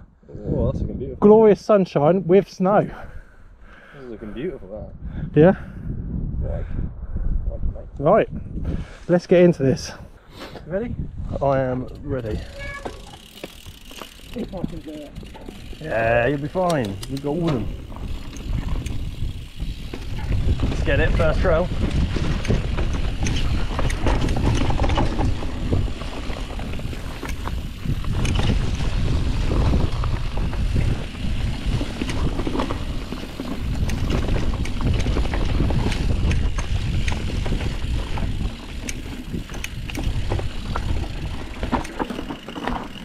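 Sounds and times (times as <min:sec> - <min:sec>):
wind buffeting microphone: 0:00.0 - 0:01.2, 0:04.1 - 0:43.0
bike knocks and rattles: 0:11.7 - 0:43.0
tyres rumbling on dirt: 0:12.9 - 0:43.0.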